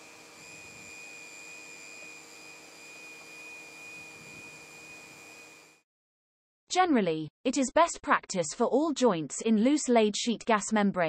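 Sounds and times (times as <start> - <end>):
blower hiss: 0.0 - 5.8
high motor whine: 0.0 - 5.8.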